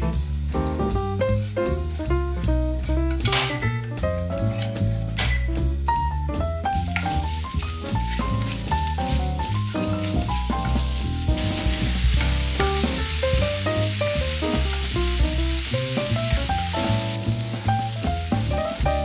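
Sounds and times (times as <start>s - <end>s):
soft background music: 0.0s - 19.0s
vegetables sizzling in oil: 6.7s - 19.0s.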